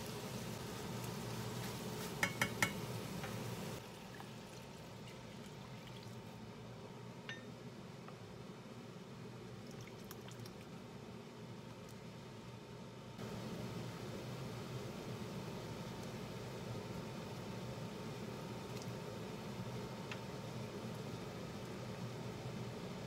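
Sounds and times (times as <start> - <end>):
food sizzling in a pan: 0.0 - 4.4.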